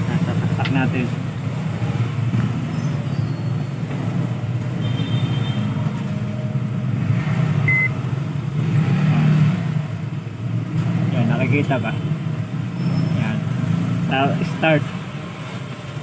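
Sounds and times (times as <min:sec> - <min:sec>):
microwave keypad beep: 0:07.7 - 0:08.0.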